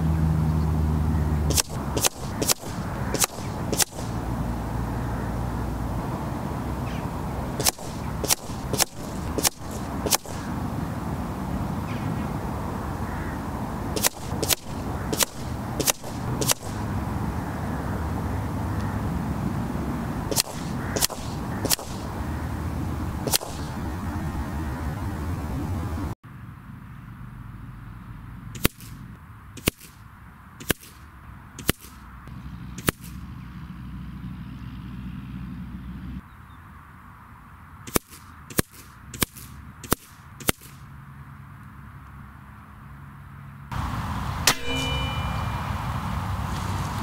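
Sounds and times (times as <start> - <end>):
air rifle shots cracking: 1.4 - 4.9, 5.6 - 11.1, 12.7 - 17.2, 20.0 - 24.4, 28.6 - 29.0, 29.6 - 30.0, 30.6 - 32.0, 32.8 - 33.2, 37.9 - 40.9.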